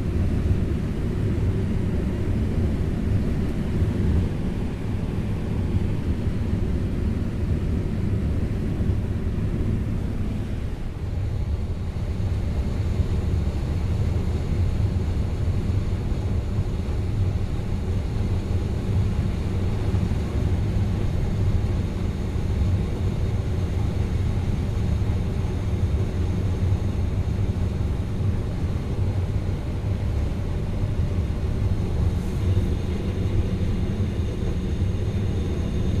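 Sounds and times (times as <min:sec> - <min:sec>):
combine harvester droning: 0:28.8 - 0:36.0.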